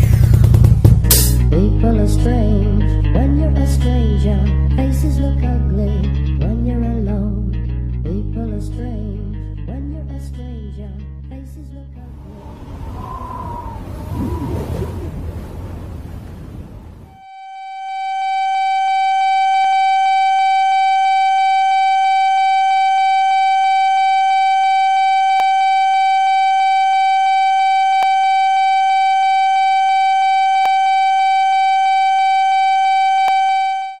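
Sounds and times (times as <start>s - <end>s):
steady held tone: 12.1s - 15.2s, 17.1s - 34.0s.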